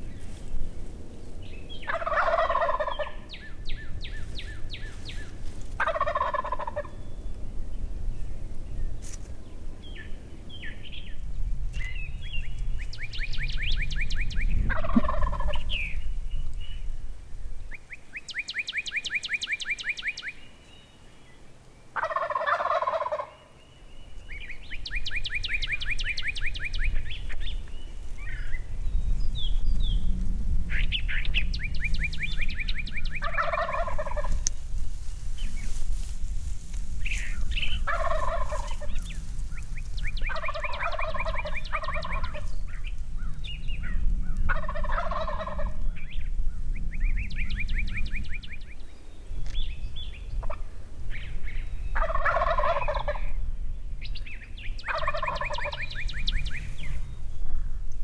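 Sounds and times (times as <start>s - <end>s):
turkey gobbling: 1.8s - 3.5s, 4.1s - 7.0s, 14.7s - 15.8s, 21.9s - 23.5s, 30.7s - 43.0s, 44.4s - 45.8s, 50.4s - 50.7s, 51.9s - 53.4s, 54.8s - 56.0s.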